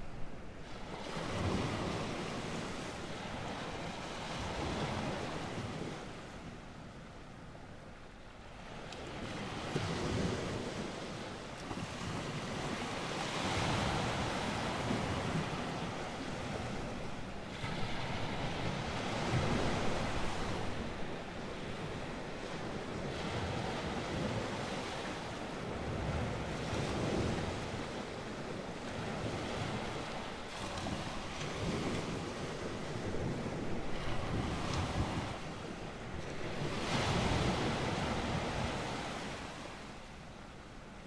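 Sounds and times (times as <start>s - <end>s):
ocean waves washing: 0.0s - 41.0s.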